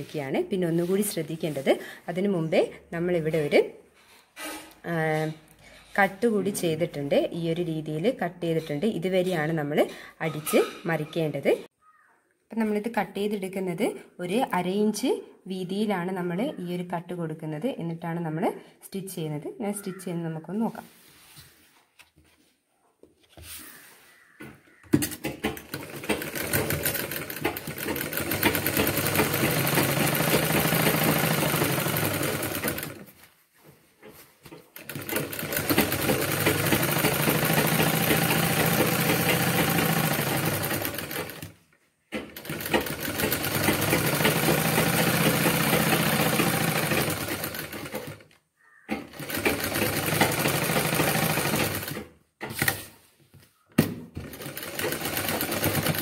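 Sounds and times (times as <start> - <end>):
sewing machine stitching: 25.0 - 33.2, 34.5 - 48.3, 48.9 - 53.0, 54.2 - 56.0.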